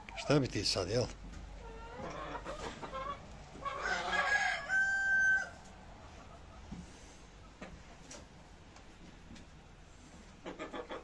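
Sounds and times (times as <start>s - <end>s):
chickens clucking: 0.0s - 11.0s
chicken long call: 1.6s - 5.7s.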